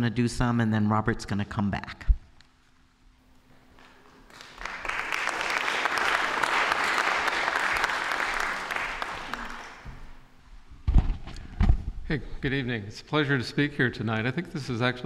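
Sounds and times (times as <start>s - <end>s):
audience applauding: 3.8s - 10.2s.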